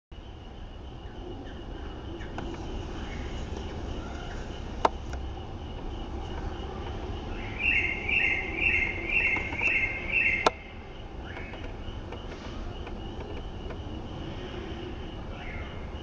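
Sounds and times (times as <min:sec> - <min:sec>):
high insect drone: 0:00.2 - 0:16.0
bird calling: 0:00.4 - 0:16.0
sharp clicks: 0:09.3 - 0:09.8, 0:11.2 - 0:13.9.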